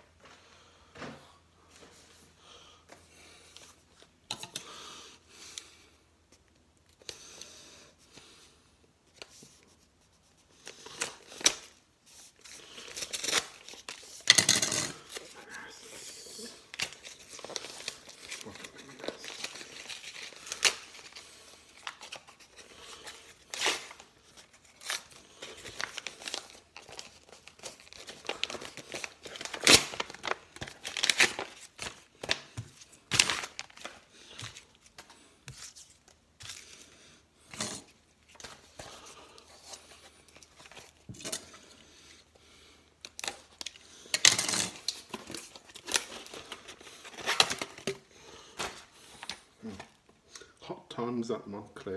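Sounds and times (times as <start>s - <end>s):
envelope tearing and crumpling: 10.7s - 35.0s.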